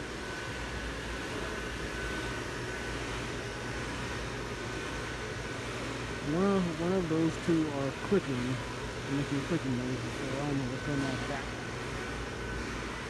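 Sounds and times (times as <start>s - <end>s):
electric blower fans humming: 0.0s - 13.0s
thin high whine: 0.0s - 13.0s.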